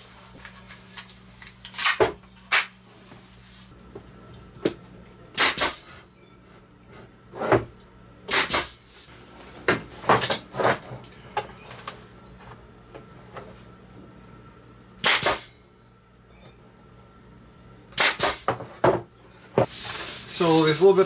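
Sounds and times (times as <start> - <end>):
brad nailer firing: 5.4 - 5.9, 8.3 - 8.8, 15.0 - 15.5, 18.0 - 18.5.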